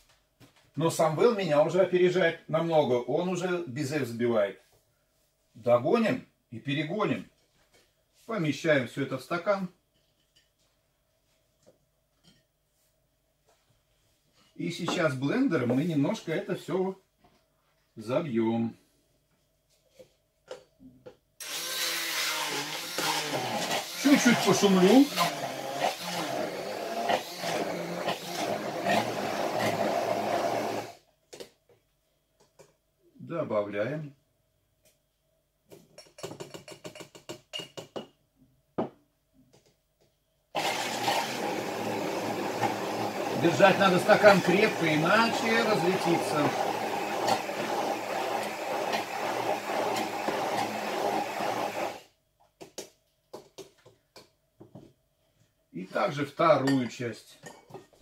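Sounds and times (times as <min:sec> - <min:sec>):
immersion blender running: 0:21.4 - 0:31.0, 0:40.6 - 0:52.1.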